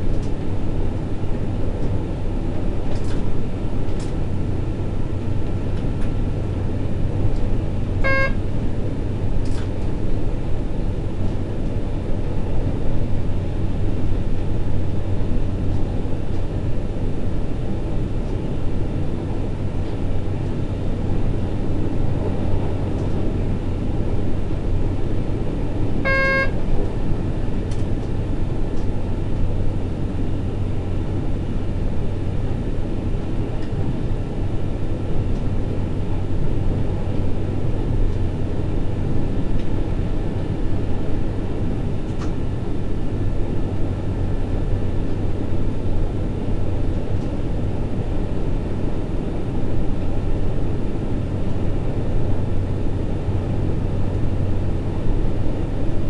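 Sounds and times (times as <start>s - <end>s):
constant low hum: 0.0s - 56.0s
short beep: 8.0s - 8.4s, 26.0s - 26.6s
train wheels rumbling on rail: 19.8s - 29.6s.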